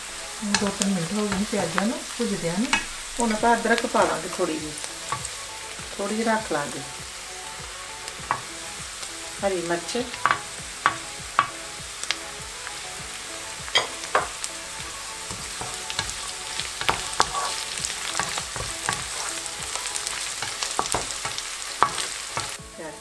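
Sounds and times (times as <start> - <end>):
onions sizzling in hot oil: 0.0 - 23.0
wooden spatula knocking on pan: 8.2 - 8.5, 10.1 - 11.6, 13.6 - 22.6.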